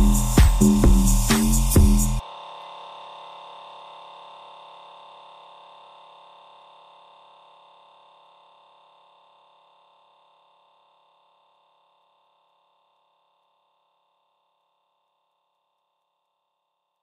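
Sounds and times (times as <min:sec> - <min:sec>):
steady electronic tone: 0:00.0 - 0:02.2.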